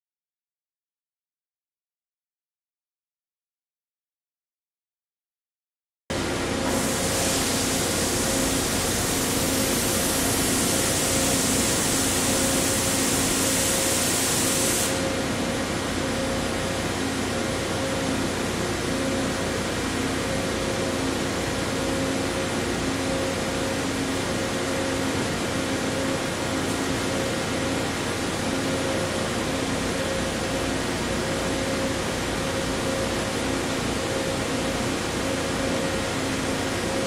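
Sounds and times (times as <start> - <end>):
milling machine hum: 6.2 - 37.0
loud high hiss: 6.7 - 15.1.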